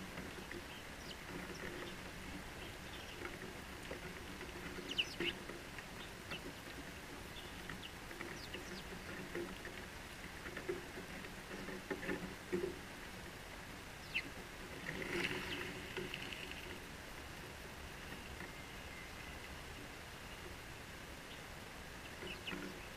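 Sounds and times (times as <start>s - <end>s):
sparrows chirping: 0.4s - 3.3s, 4.7s - 6.4s, 7.3s - 8.9s, 14.0s - 14.3s, 21.2s - 22.9s.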